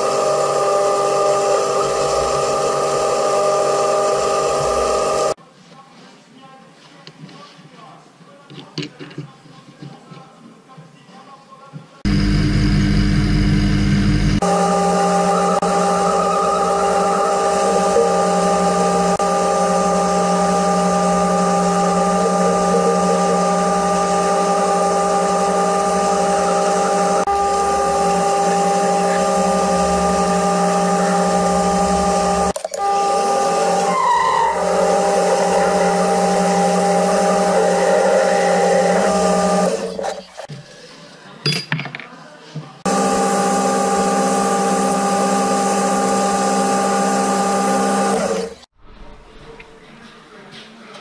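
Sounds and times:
metal lathe motor whine: 0.0 - 5.4, 12.1 - 40.4, 42.9 - 48.7.

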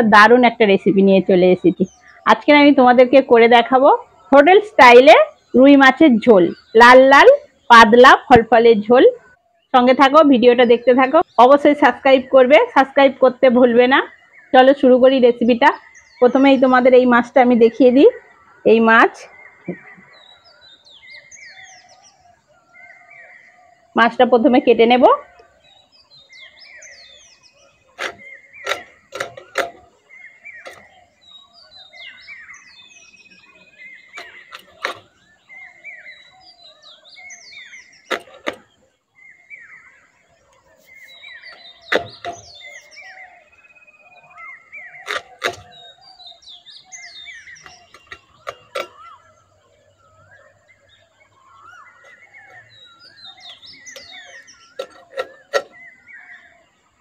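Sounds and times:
birds chirping: 0.0 - 57.0
fish scraping against blade: 27.9 - 29.9, 38.1 - 38.6, 45.0 - 46.0.

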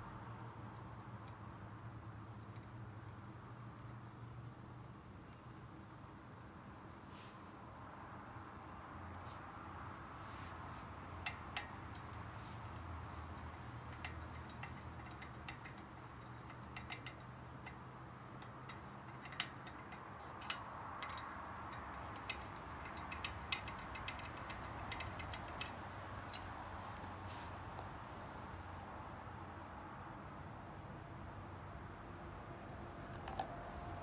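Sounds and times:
light metal clicks and taps: 11.2 - 28.9.

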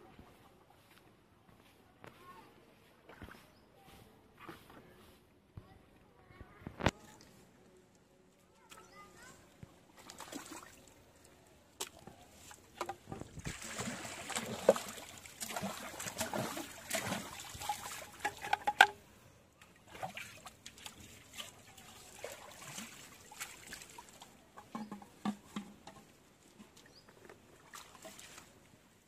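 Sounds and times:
water splashing and sloshing: 8.6 - 29.0.

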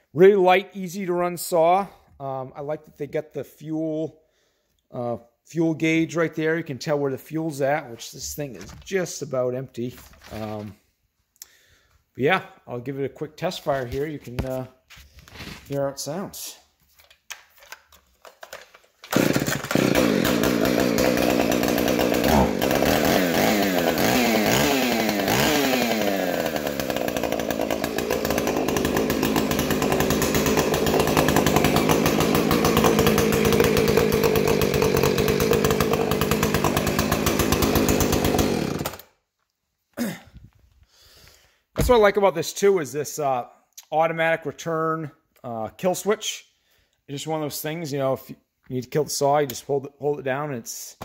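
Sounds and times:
chainsaw revving: 19.0 - 39.1.

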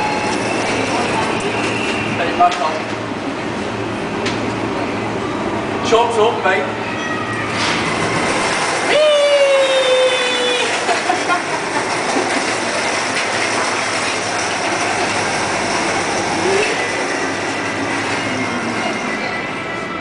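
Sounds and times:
small wheels rolling on tiles: 7.9 - 19.4
man shouting: 8.9 - 10.8.

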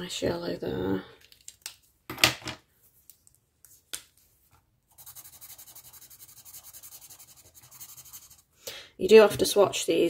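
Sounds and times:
felt-tip marker scribbling on paper: 4.9 - 8.5.

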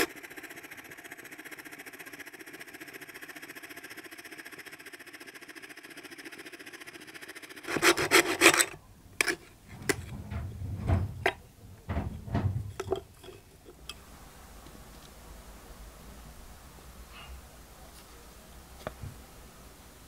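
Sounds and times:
rasping wood by hand: 0.0 - 0.4, 7.6 - 10.2
rubbing and scraping strokes: 0.0 - 0.7, 7.4 - 13.8
scroll saw cutting wood: 0.0 - 10.2.

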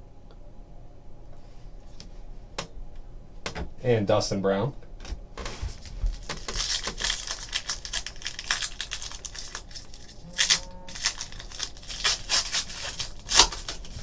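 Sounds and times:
wrapper crinkling as torn open: 5.7 - 14.0.

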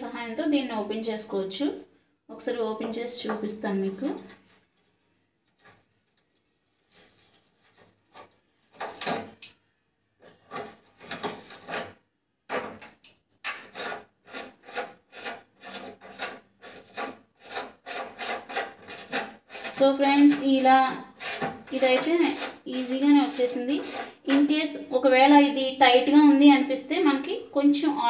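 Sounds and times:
metal scraping and grating: 10.2 - 12.0, 13.5 - 24.8.

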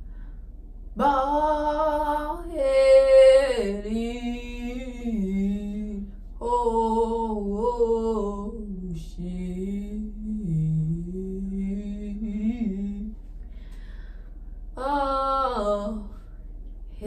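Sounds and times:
woman singing alone: 1.0 - 13.1, 14.8 - 16.2.

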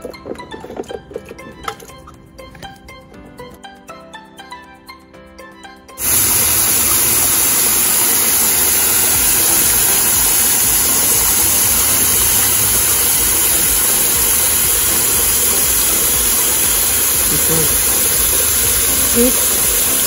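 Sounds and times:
hose water splashing into pond: 6.0 - 20.0.

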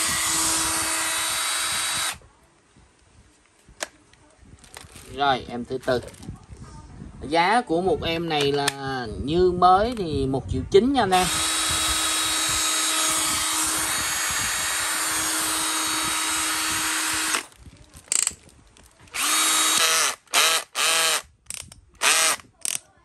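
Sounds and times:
cordless drill spinning: 0.0 - 2.2, 11.1 - 18.3, 19.1 - 22.8.

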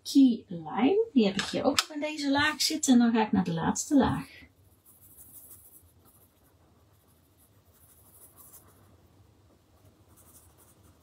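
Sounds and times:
pencil scratching on paper: 4.0 - 9.1, 9.8 - 11.0.

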